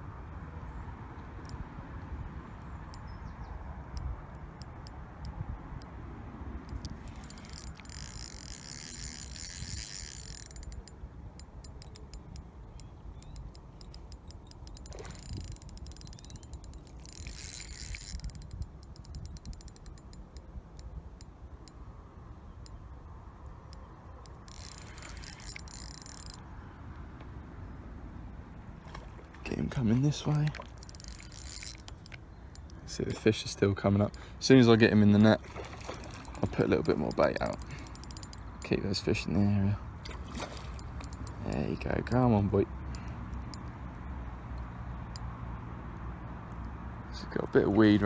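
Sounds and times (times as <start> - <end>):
fishing reel drag ratcheting: 6.6 - 21.3, 24.2 - 26.4, 30.3 - 33.4, 35.2 - 38.8, 40.5 - 42.3, 42.9 - 44.1.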